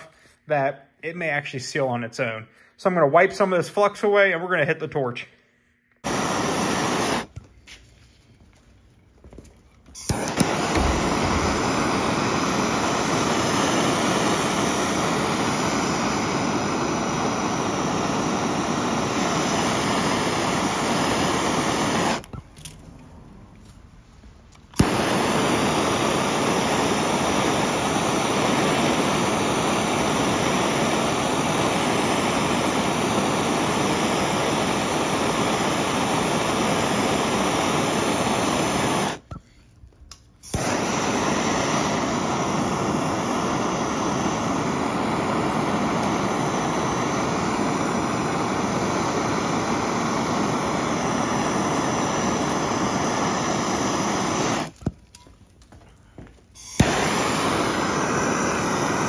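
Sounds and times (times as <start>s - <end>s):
gas torch flame hissing: 6.0s - 7.4s, 9.9s - 22.4s, 24.6s - 39.4s, 40.4s - 54.9s, 56.4s - 59.0s.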